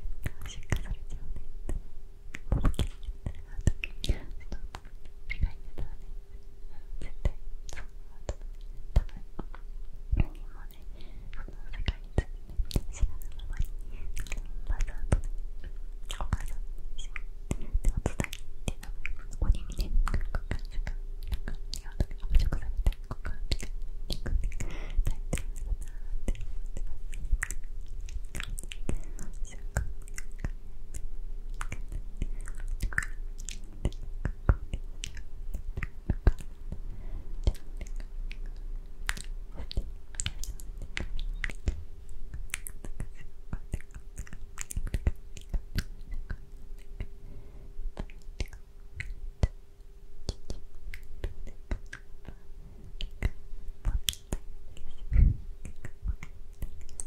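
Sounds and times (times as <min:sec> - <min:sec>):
soft whispering: 0:00.0 - 0:49.6, 0:50.2 - 0:57.0
tongue and lip clicks: 0:00.2 - 0:06.0, 0:06.7 - 0:47.2, 0:47.9 - 0:49.6, 0:50.2 - 0:57.0.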